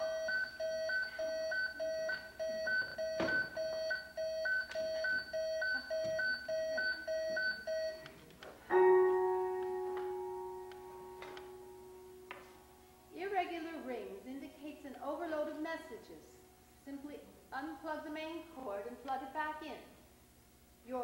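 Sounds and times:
telephone beeping: 0.0 - 8.1
piano chord ringing: 8.7 - 12.9.

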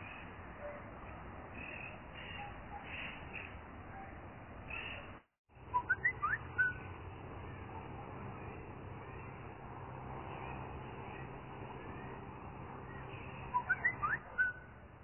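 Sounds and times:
outdoor background hiss: 0.0 - 15.0
bird chirping whistles: 5.7 - 6.8, 13.5 - 14.7.

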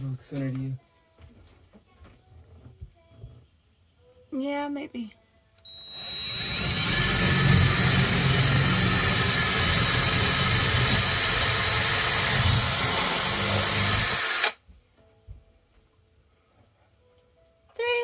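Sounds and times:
cordless drill drilling: 5.7 - 14.6.

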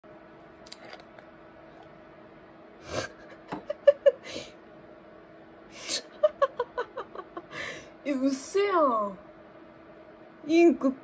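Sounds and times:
faint steady hum: 0.0 - 11.0
person stifled laugh: 2.9 - 4.5, 5.8 - 7.8.

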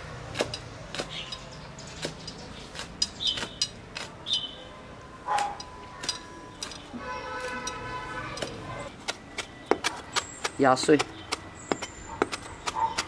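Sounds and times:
cleaver chopping on wooden board: 0.3 - 1.2, 8.4 - 13.0.

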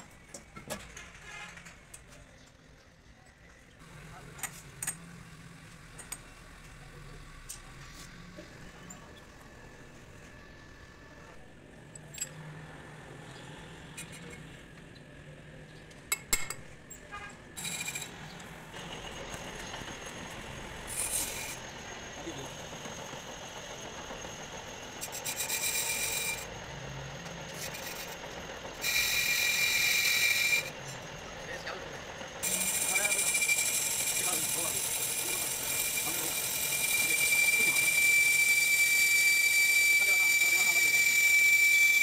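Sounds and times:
rasping scraping on metal: 17.6 - 21.8, 25.0 - 26.6, 27.3 - 30.8, 32.4 - 38.9.

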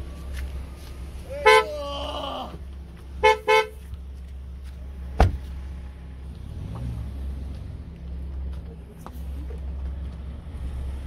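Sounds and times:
vehicle horn honking: 1.4 - 1.8, 3.2 - 3.9.

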